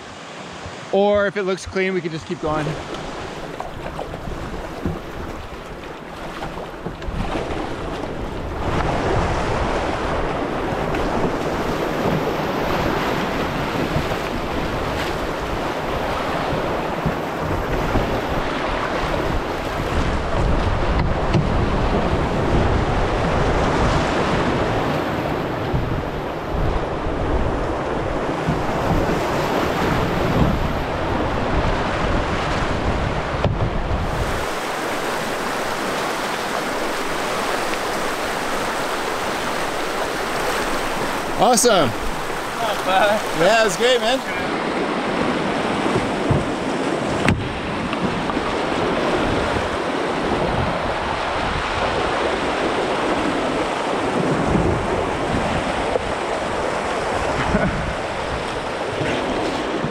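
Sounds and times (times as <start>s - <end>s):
wind buffeting microphone: 0.0s - 59.9s
whitewater rapids rushing: 34.0s - 59.9s.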